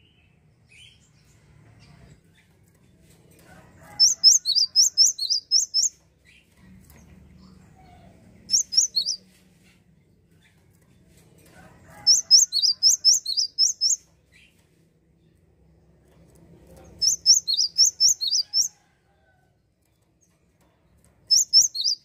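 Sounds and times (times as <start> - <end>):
bird singing rapid high notes: 4.0 - 5.9, 8.5 - 9.2, 12.1 - 14.0, 17.0 - 18.7, 21.3 - 22.0.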